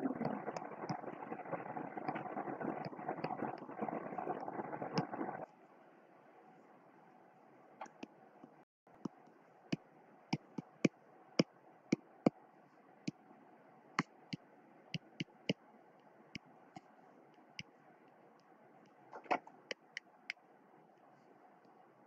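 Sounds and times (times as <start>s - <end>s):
faint steady hiss: 0.0s - 22.0s
stylus tapping on tablet screen: 10.4s - 11.0s, 15.0s - 15.6s.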